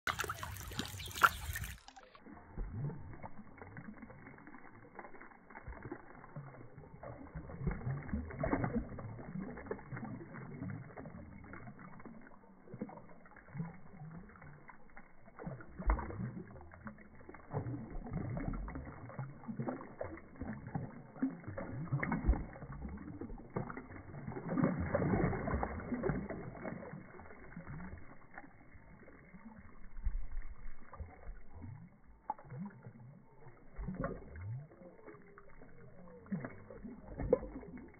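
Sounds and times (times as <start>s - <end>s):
fish splashing at water surface: 0.0s - 37.9s.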